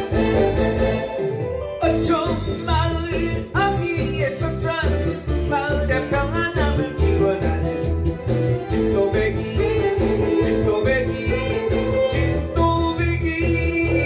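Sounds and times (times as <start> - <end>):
backing track with bass beat: 0.0 - 14.0
man singing into a microphone: 1.8 - 8.0, 8.6 - 14.0.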